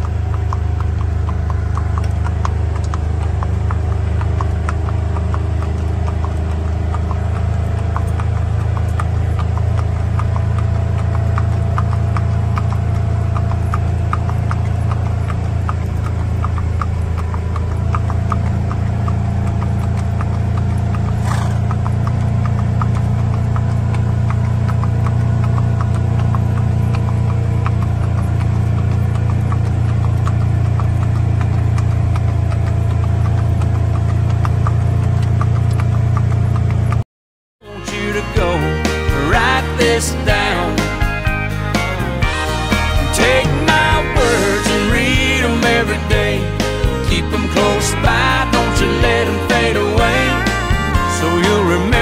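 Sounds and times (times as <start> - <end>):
horse hooves clip-clopping on road: 0.0 - 37.0, 37.7 - 52.0
steady low hum: 0.0 - 37.0.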